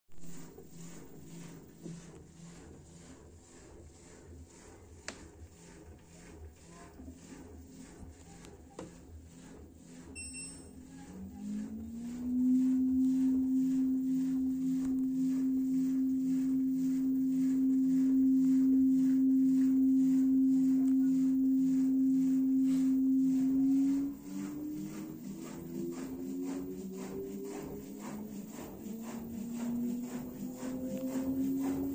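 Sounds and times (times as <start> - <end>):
washer drum spinning hum: 0.1 - 31.9
control panel beep: 10.2 - 10.8
faint whooshing pulse: 10.7 - 31.9.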